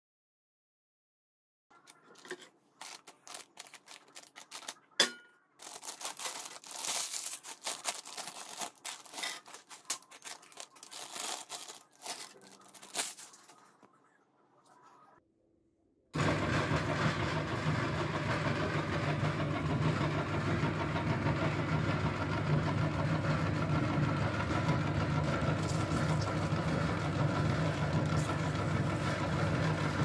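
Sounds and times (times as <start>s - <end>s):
foil packets crinkling and tearing: 1.8s - 5.0s, 5.6s - 13.8s
chips rattling onto paper plate: 1.9s - 4.8s, 5.6s - 13.5s.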